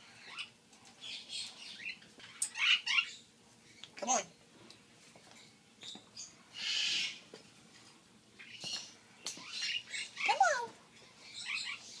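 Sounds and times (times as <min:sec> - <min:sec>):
parrot hissing: 0:06.5 - 0:07.2.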